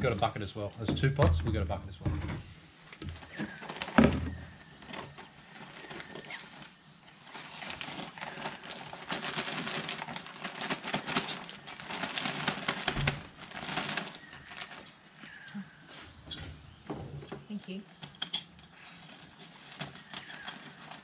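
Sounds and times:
plastic bags crinkling: 3.1 - 15.5, 18.2 - 21.0.

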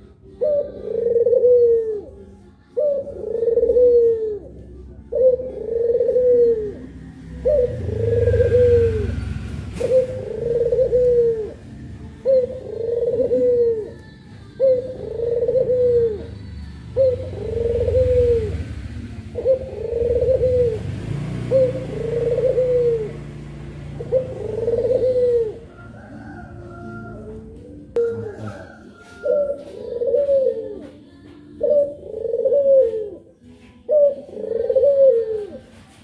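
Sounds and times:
dove cooing: 0.0 - 36.0.

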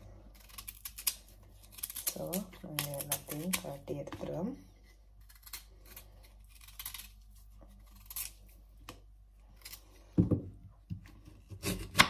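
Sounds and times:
knife thump: 10.2 - 10.5.

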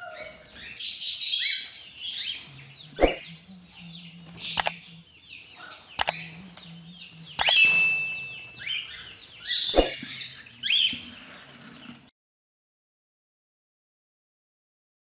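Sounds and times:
birds chirping and calling: 0.0 - 12.1
wings flapping: 3.0 - 3.2.

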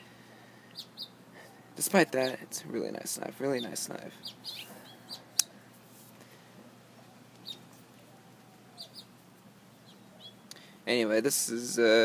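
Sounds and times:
birds chirping: 0.0 - 11.1.

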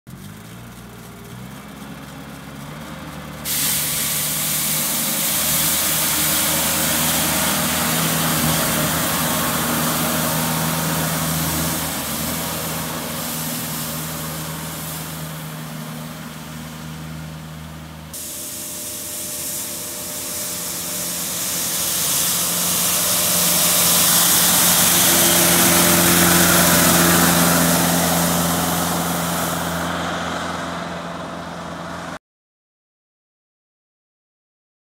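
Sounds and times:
tractor engine: 0.1 - 32.2
snow broom bristles hissing: 3.4 - 17.4, 18.1 - 29.9.

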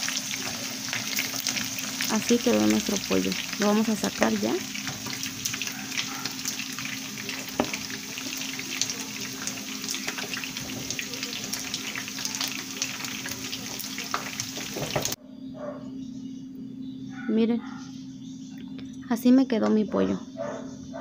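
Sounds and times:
chicken sizzling in hot oil: 0.0 - 15.2.

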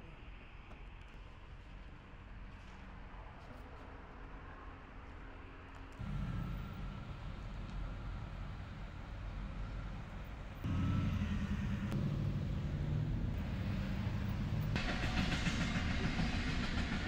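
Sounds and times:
car engine: 6.0 - 14.9.

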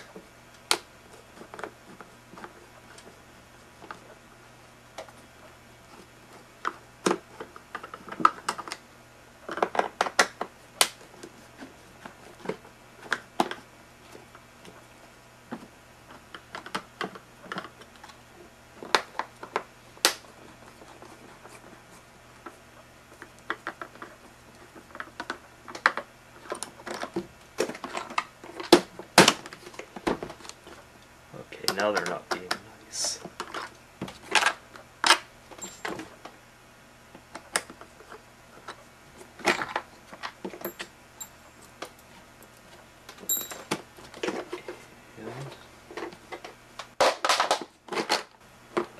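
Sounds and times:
plastic parts knocking and rattling: 22.4 - 30.8.

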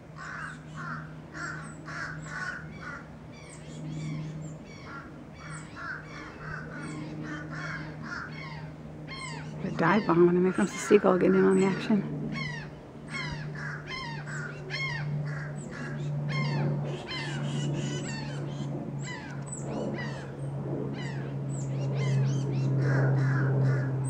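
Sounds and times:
steady low hum: 0.0 - 24.0
bird alarm calls: 0.2 - 20.3.

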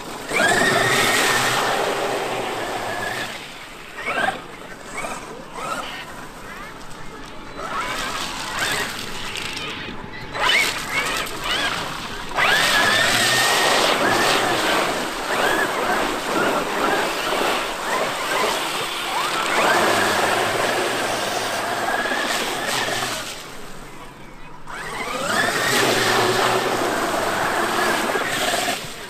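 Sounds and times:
water splashing: 0.0 - 24.0
electric motor whining: 0.2 - 6.2, 10.3 - 23.6.

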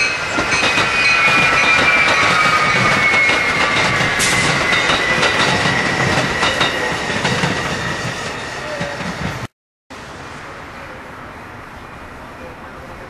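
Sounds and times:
rail-joint clacks: 0.0 - 9.5
electric train passing: 0.0 - 13.0.

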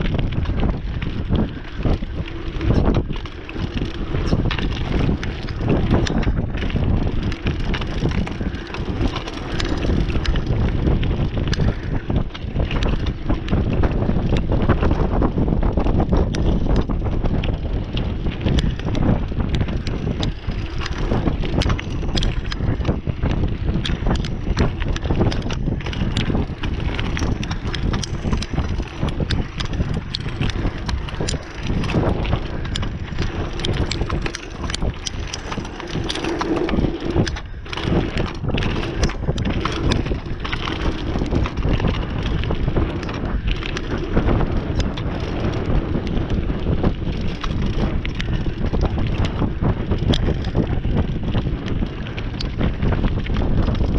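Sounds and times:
bike rattling: 0.0 - 53.9
wind buffeting microphone: 0.0 - 53.9
tyres crunching on dirt: 18.0 - 46.3.

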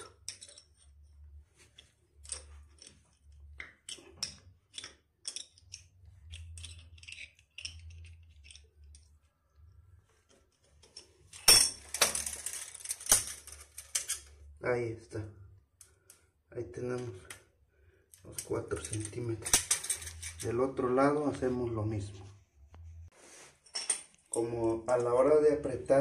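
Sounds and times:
wrench turning metal nut: 0.1 - 0.9, 2.2 - 9.1
metallic clatter: 18.8 - 20.6.

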